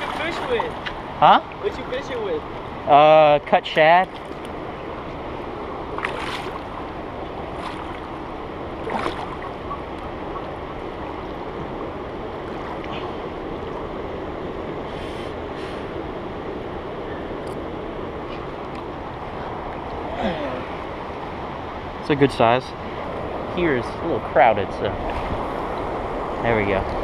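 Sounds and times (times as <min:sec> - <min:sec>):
water splashes: 0:00.0 - 0:02.6, 0:03.8 - 0:14.0.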